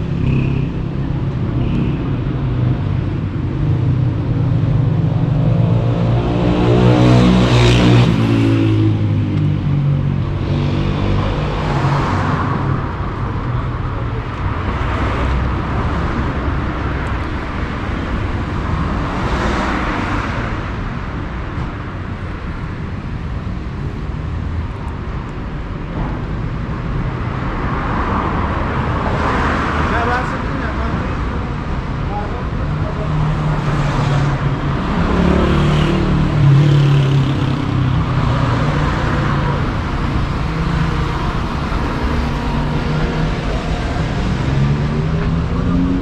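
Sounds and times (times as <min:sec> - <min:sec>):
steady traffic hum: 0:00.0 - 0:46.0.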